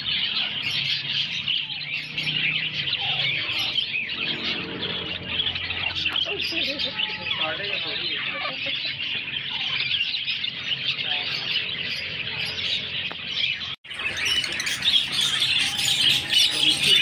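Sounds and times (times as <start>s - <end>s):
caged birds chirping and squawking: 0.0s - 17.0s.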